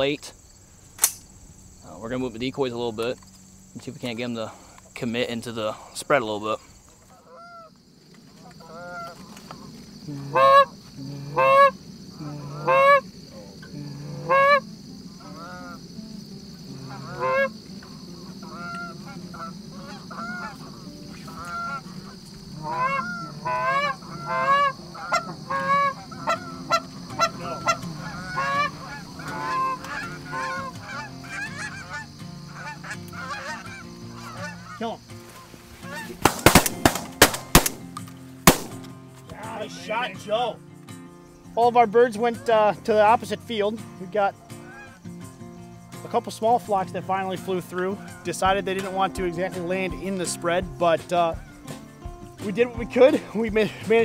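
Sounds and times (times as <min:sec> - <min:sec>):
geese honking: 0:05.6 - 0:40.6, 0:41.7 - 0:45.0, 0:45.8 - 0:54.0
shotgun blasts: 0:36.2 - 0:38.9.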